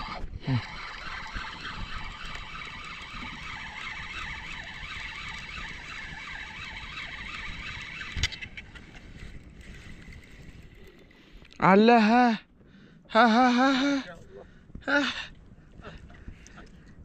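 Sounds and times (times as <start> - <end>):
reel click: 0.0 - 11.6
spinning reel whirring: 0.0 - 12.2.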